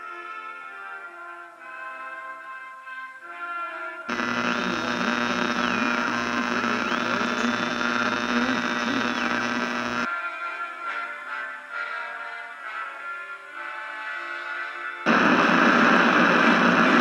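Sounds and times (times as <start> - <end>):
loud buzzing hum with static: 4.1 - 10.1, 15.1 - 17.0.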